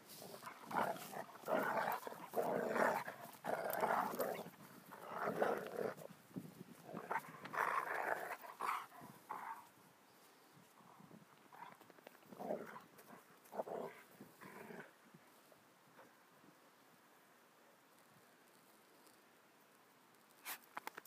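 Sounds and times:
dogs growling and grunting: 0.2s - 6.0s.

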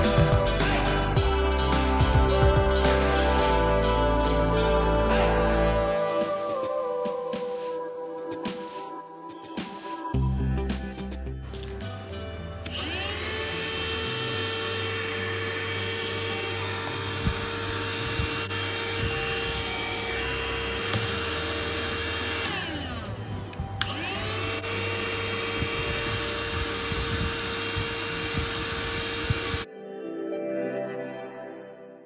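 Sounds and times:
vacuum cleaner motor whine: 12.6s - 29.7s.

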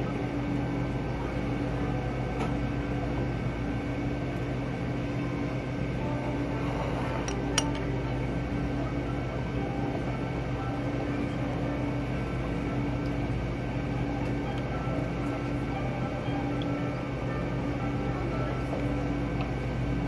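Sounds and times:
steady machine hum: 0.0s - 20.0s
tableware clink: 7.2s - 7.9s.

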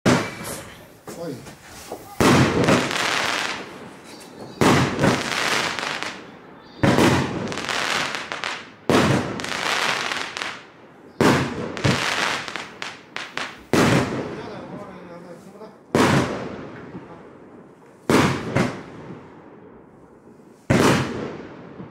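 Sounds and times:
fireworks bangs: 0.0s - 21.9s
fireworks crackling: 0.1s - 21.9s.

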